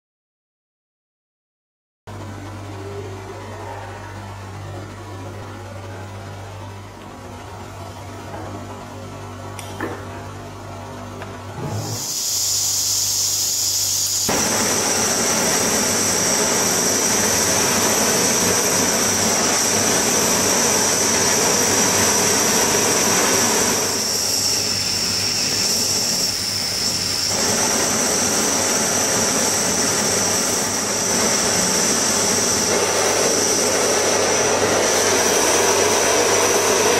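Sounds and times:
gas hissing from nozzle: 11.6 - 34.0
torch flame rushing hiss: 11.6 - 36.9.

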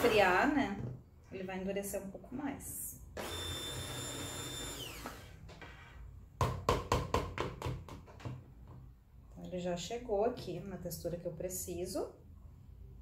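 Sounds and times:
immersion blender whine: 0.0 - 0.5, 3.2 - 5.4.

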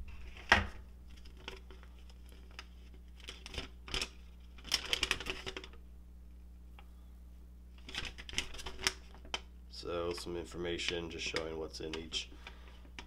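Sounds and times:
paper sheet crinkling: 1.1 - 5.8, 7.8 - 9.4.

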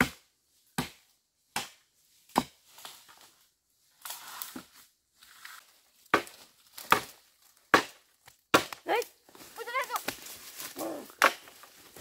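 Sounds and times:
dry leaves crunching: 9.0 - 12.0.

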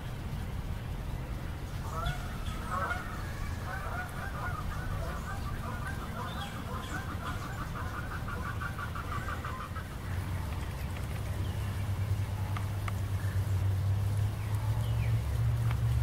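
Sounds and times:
steady low rumble: 0.0 - 16.0
geese honking: 1.8 - 13.4.

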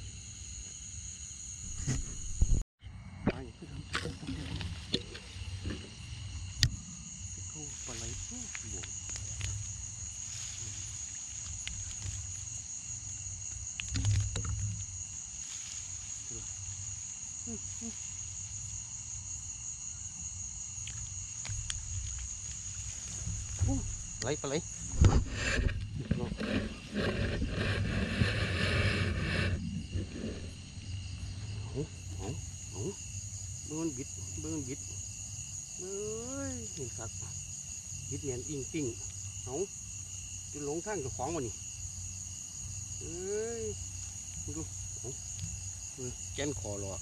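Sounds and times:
crickets trilling: 0.0 - 47.0
insects chirping: 0.0 - 47.0
clicks and rustles: 7.8 - 12.6, 13.6 - 15.0, 20.8 - 29.0
loud thump: 23.2 - 27.6.

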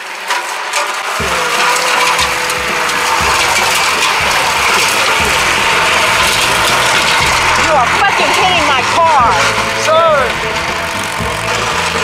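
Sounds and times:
string trimmer engine running: 1.0 - 12.0.

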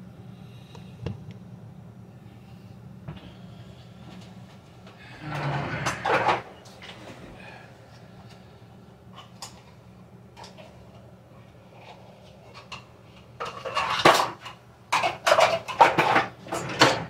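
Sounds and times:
kitchen utensils clattering in drawer: 5.2 - 6.5, 12.5 - 17.0.

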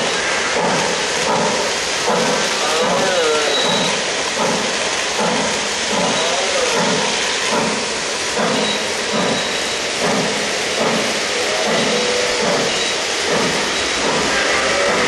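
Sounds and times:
model steam locomotive chuffing: 0.0 - 15.0.

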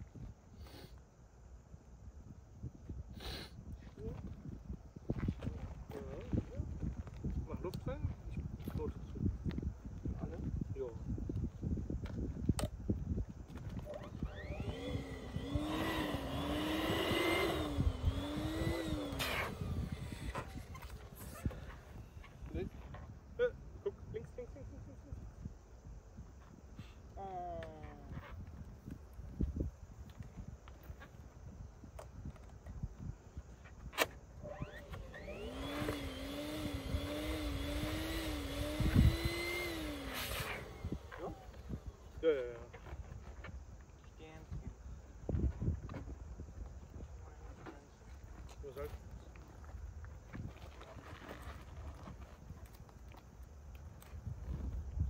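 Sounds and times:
wind on microphone: 1.6 - 42.3, 42.9 - 53.0, 53.8 - 55.0
electric air pump whine: 13.6 - 22.7, 34.0 - 42.2.

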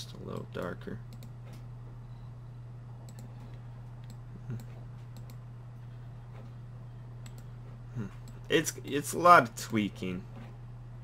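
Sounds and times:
low electrical hum: 0.0 - 11.0
computer mouse clicking: 0.3 - 1.7, 3.0 - 5.4, 7.2 - 7.5.

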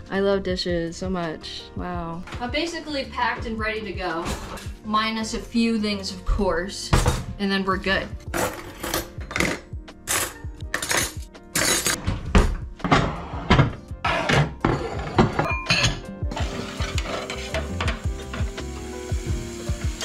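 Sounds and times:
background music with steady beat: 0.0 - 20.0
dishes and cutlery clattering: 8.3 - 12.0, 12.9 - 18.5.

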